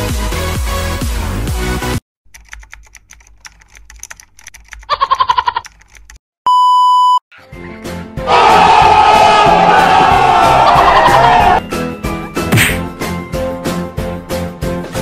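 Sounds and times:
keyboard typing clicks: 2.3s - 6.2s
high bleep tone: 6.5s - 7.2s.

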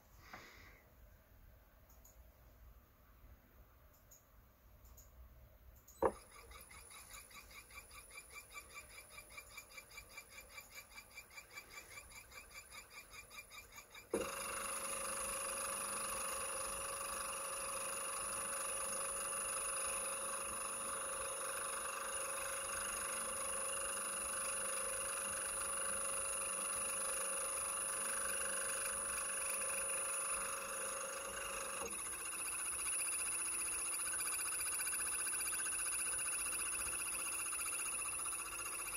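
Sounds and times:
electric motor humming and whining: 14.2s - 38.9s.

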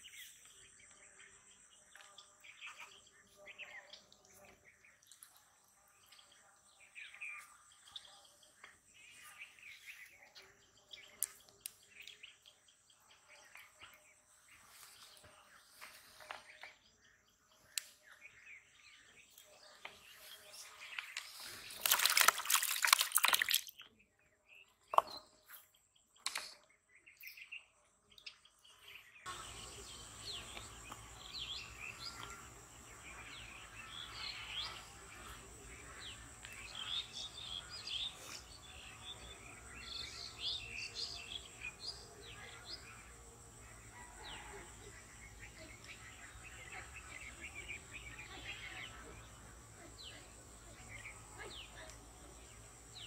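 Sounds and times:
birds chirping and calling: 0.0s - 23.9s, 24.5s - 53.0s
fish thrashing and water splashing: 21.6s - 23.8s.

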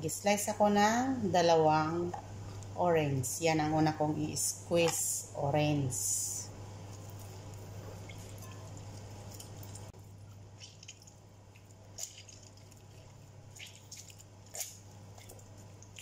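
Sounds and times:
steady low hum: 0.0s - 16.0s
spoon squishing orange pulp: 6.9s - 16.0s.

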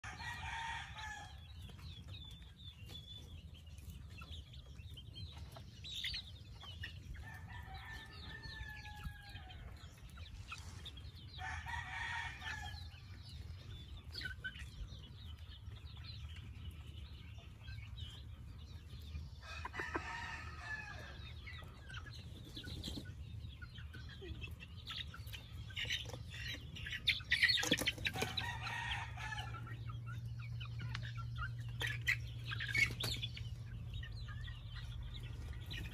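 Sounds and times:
chickens clucking and chirping: 0.0s - 35.9s.

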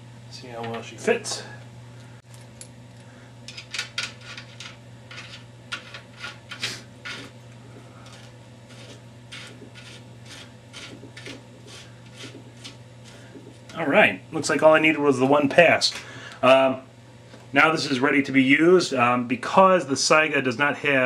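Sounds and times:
faint steady hum: 0.0s - 21.0s
metal fitting scraping and clicking: 8.1s - 12.8s.

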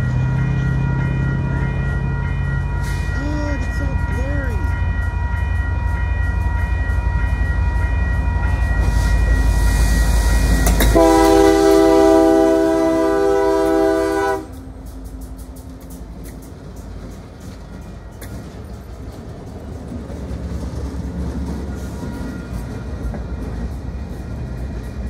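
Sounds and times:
locomotive engine rumble: 0.0s - 25.0s
freight cars rolling past: 8.2s - 25.0s
locomotive horn blowing: 10.8s - 14.8s.

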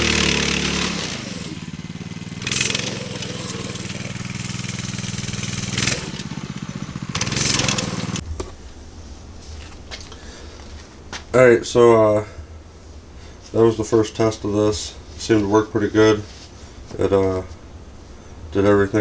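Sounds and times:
small gas engine running: 0.0s - 8.2s.

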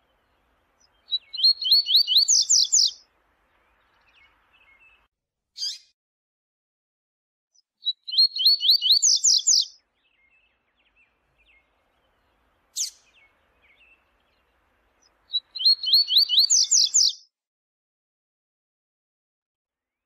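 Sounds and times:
songbird singing high notes: 0.0s - 3.0s, 7.8s - 14.4s, 15.3s - 17.2s.

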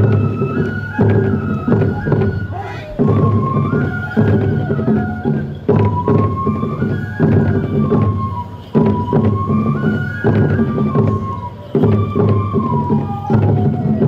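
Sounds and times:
heavy drum strokes: 0.0s - 6.5s
flute melody: 0.0s - 14.0s.

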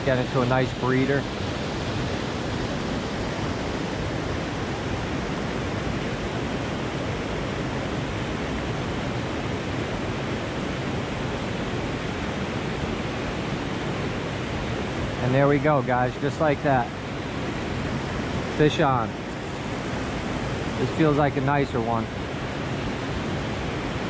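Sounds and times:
stream rushing over rocks: 0.0s - 24.0s.

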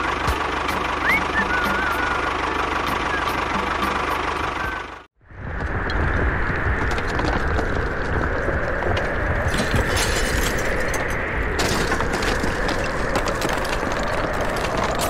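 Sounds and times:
rattling and clicking: 6.8s - 15.0s.

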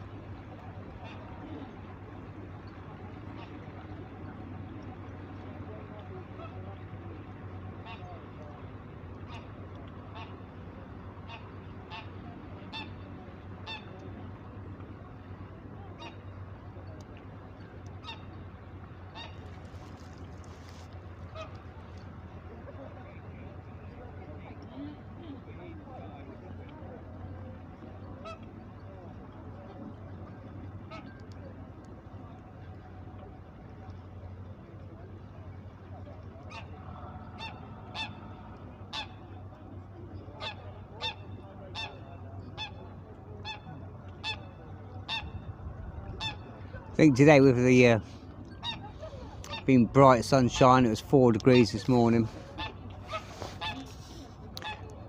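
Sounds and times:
steady low hum: 0.0s - 55.0s
geese honking: 9.1s - 10.5s, 11.1s - 14.0s, 15.9s - 16.9s, 17.9s - 22.0s, 28.0s - 28.8s, 36.4s - 55.0s.

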